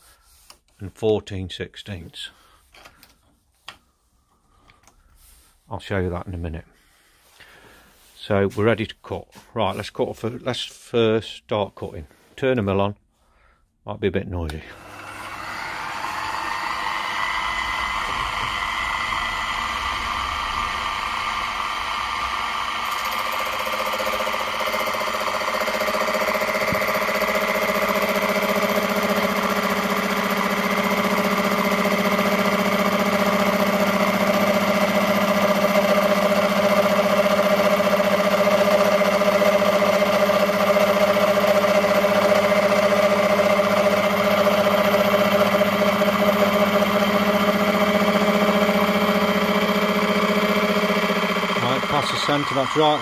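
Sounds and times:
milling machine whining: 14.7 - 53.0
gear cutter cutting metal: 14.8 - 53.0.

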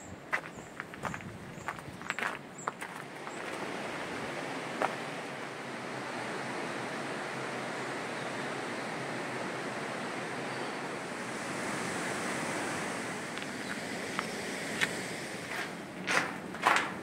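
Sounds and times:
footsteps on gravel: 0.3 - 3.7, 13.4 - 17.0.

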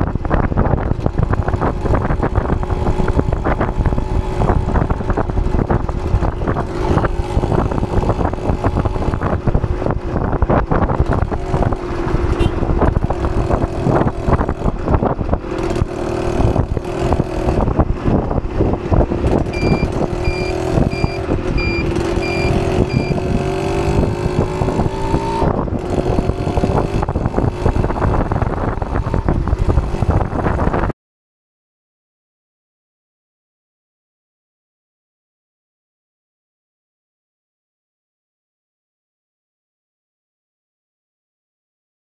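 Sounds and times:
wind buffeting microphone: 0.0 - 30.9
two-stroke motorcycle engine revving: 0.1 - 30.9
short high beeps: 19.5 - 23.2.

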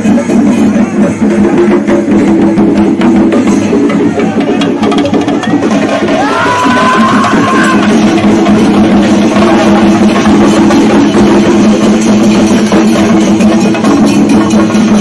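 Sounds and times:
drums beaten fast with sticks: 0.0 - 15.0.

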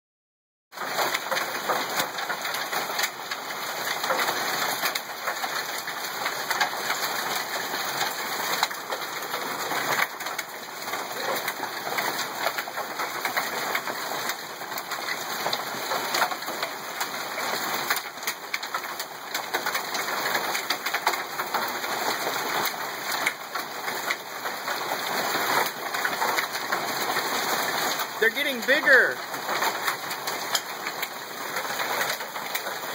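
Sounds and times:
hailstones ticking: 0.8 - 32.9
heavy rain hissing: 26.9 - 32.9.

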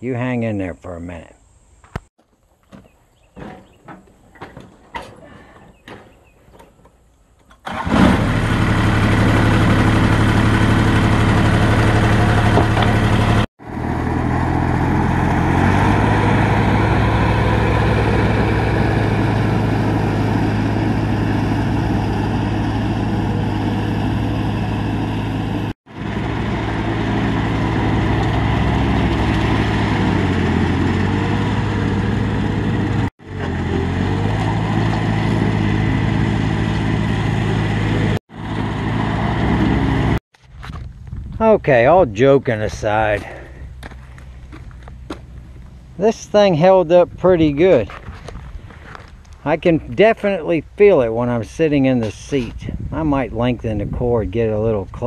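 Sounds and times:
lawn tractor engine running: 7.6 - 40.7.

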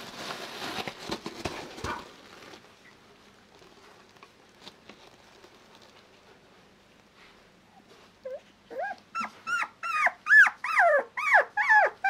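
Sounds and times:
puppy whimpering: 7.7 - 12.0.

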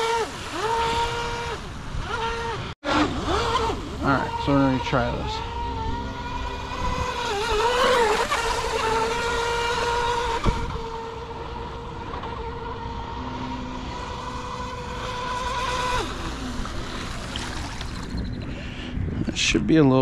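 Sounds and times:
electric motor whining: 0.0 - 19.1.

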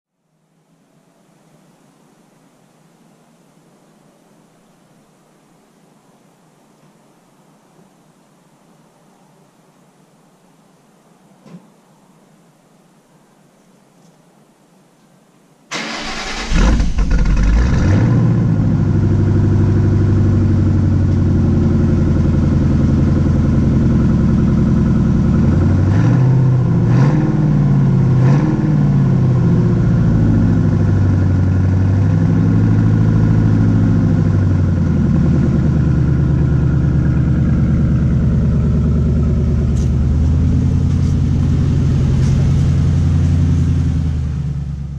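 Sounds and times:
car engine revving and idling: 15.9 - 44.9.

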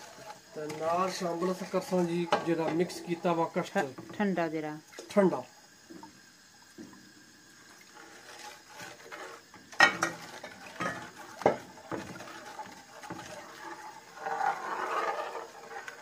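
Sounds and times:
liquid swishing: 0.0 - 4.0, 7.5 - 16.0.

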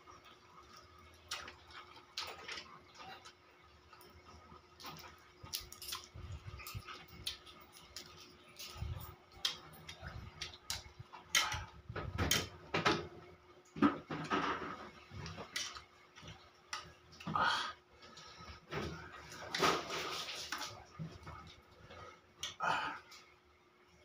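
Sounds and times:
chewing and wet mouth noises: 0.1 - 11.9.

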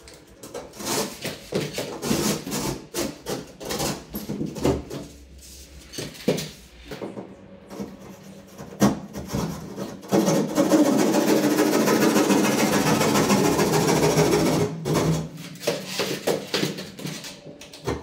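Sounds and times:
hand tool scraping gypsum board: 0.4 - 4.6.

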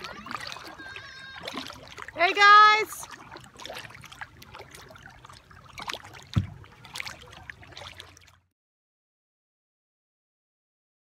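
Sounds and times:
kayak paddle strokes: 0.0 - 8.3
water splashing and dripping: 0.0 - 8.5
thump: 6.3 - 6.6.

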